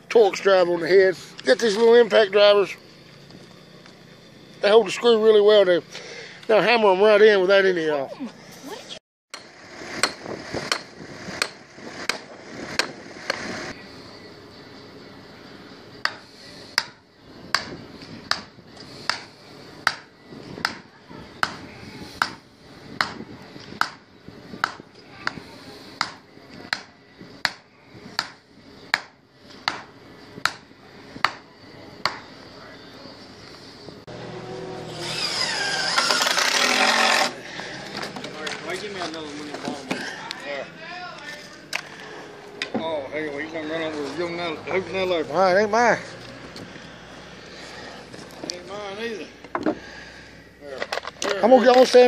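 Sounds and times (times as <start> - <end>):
hammer striking steel stake: 9.3 - 12.2.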